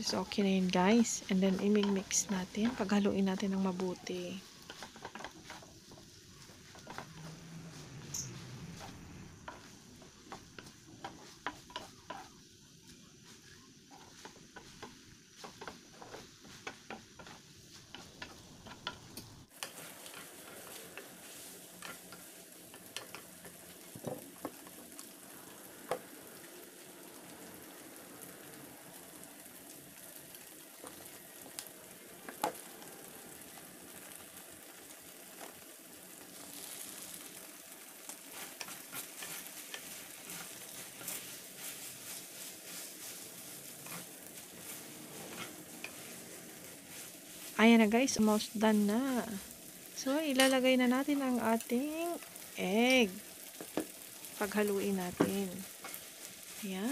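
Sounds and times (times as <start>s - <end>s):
noodles sizzling in a pan: 0.0s - 56.9s
utensils clicking and scraping pan: 0.2s - 25.1s, 36.4s - 56.9s.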